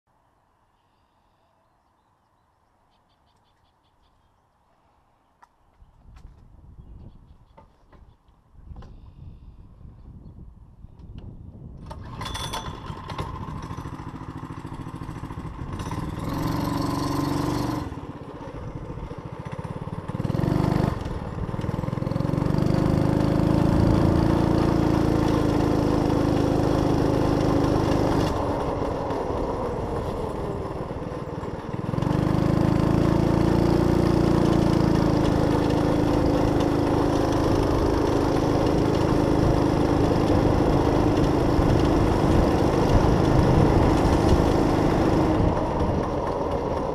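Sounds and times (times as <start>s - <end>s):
trike engine revving: 11.8s - 46.9s.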